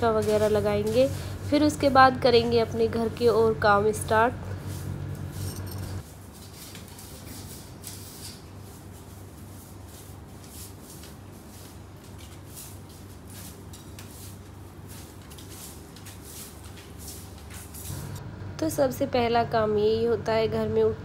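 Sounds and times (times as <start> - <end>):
broom sweeping a floor: 0.0 - 3.4, 4.5 - 18.2
steady low hum: 0.0 - 6.0.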